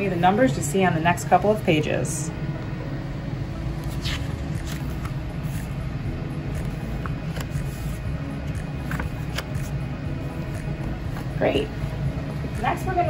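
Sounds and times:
low room hum: 0.0s - 13.0s
book pages turning: 3.8s - 5.8s, 6.5s - 9.8s.

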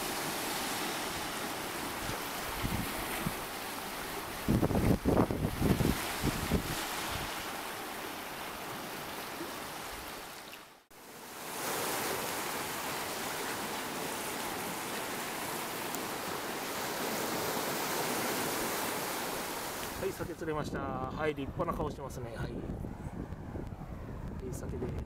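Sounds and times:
small waves washing on rocks: 0.0s - 10.5s, 11.1s - 20.3s.

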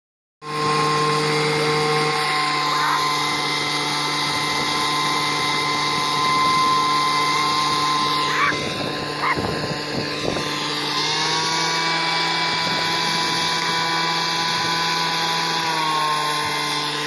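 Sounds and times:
engine-driven blower whining: 0.4s - 17.0s.

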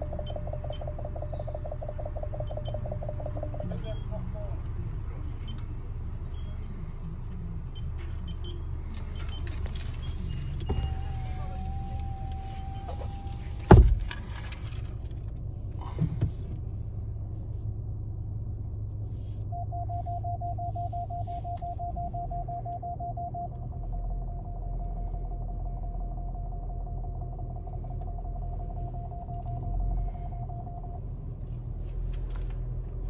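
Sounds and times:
held beep: 0.0s - 4.6s, 19.5s - 31.1s
rapid electronic beeping: 0.0s - 4.6s, 19.6s - 31.1s
car engine hum: 0.0s - 33.0s
power window winding up: 10.7s - 14.7s
window shutting thump: 12.9s - 14.3s.

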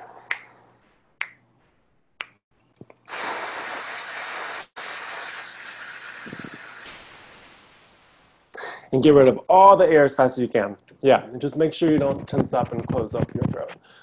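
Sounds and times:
finger snaps: 0.3s - 0.6s, 1.2s - 1.4s, 2.2s - 3.1s
breath hissing through teeth: 3.1s - 8.8s.

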